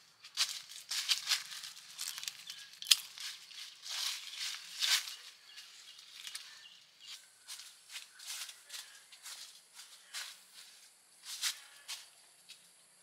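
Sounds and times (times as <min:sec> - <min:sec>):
plastic bag and leaves rustling: 0:00.3 - 0:06.6.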